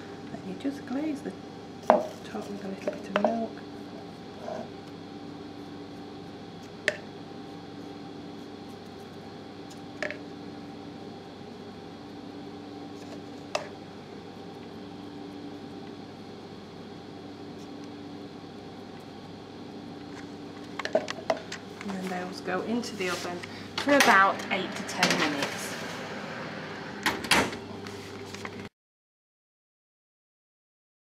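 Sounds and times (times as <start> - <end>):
mechanical hum: 0.0 - 28.7.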